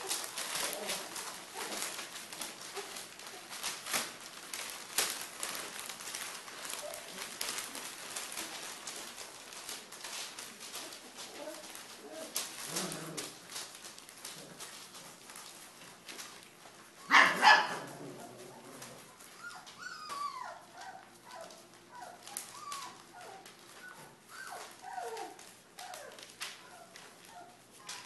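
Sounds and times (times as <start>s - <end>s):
puppies whimpering and yipping: 0.0s - 13.4s, 17.0s - 28.0s
paws scratching on bedding: 0.0s - 28.0s
puppy barking: 17.0s - 18.0s.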